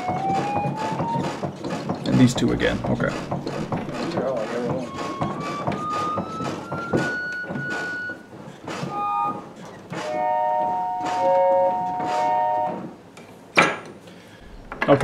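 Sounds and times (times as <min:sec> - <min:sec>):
organ keys clacking: 0:00.0 - 0:08.2
reed organ notes: 0:02.1 - 0:05.6.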